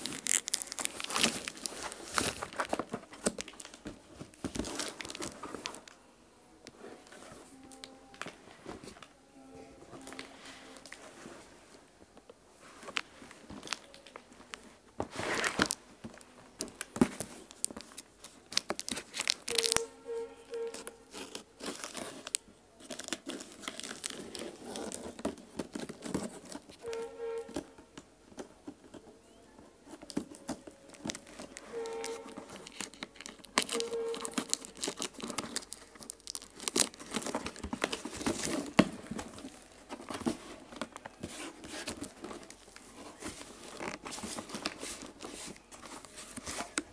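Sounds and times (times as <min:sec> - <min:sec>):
plastic wrap crinkling: 0:00.0 - 0:06.0, 0:12.6 - 0:46.9.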